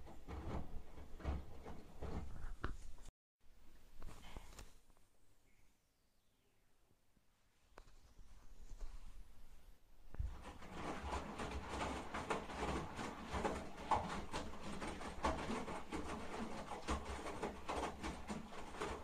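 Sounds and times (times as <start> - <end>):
laundry sloshing in washing machine: 0.0 - 2.5, 10.1 - 19.0.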